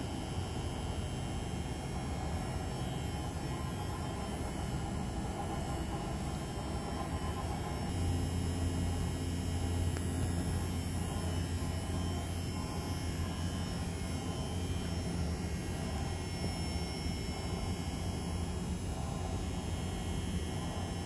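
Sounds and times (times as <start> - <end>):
vibrator humming low: 0.0 - 21.0.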